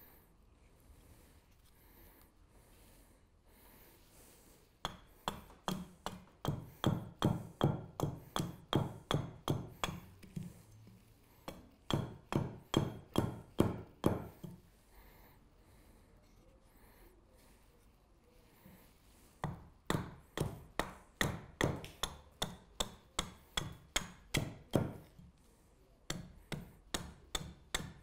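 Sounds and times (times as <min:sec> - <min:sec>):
axe chopping wood: 0:04.9 - 0:10.0, 0:11.5 - 0:14.3, 0:19.4 - 0:25.0, 0:26.1 - 0:28.0.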